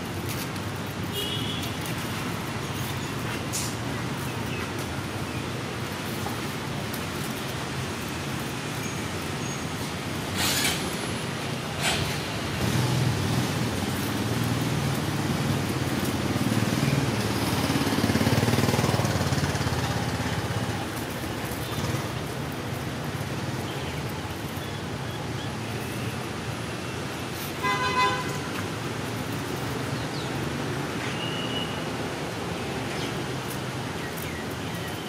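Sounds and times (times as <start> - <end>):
vehicle horn toot: 1.1 - 1.8, 27.6 - 28.5
vehicle rumbling past: 10.2 - 22.4.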